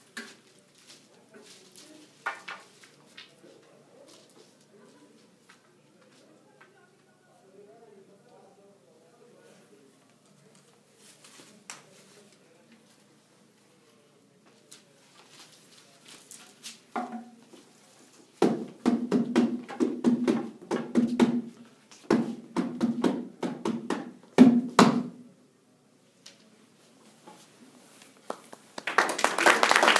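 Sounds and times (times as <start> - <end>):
hand drum beating: 22.1 - 25.0.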